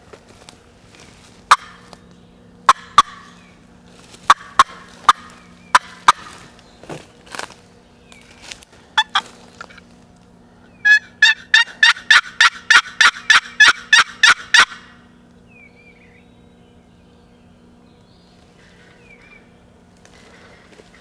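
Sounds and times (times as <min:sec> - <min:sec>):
turkey yelping: 0:01.5 - 0:01.8, 0:02.7 - 0:03.4, 0:04.3 - 0:06.4, 0:09.0 - 0:09.3, 0:10.8 - 0:15.0.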